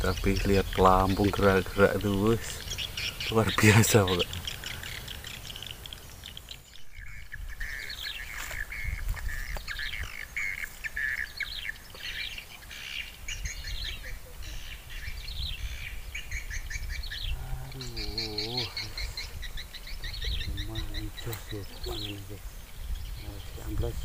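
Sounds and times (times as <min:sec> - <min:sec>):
birds chirping: 0:00.0 - 0:24.0.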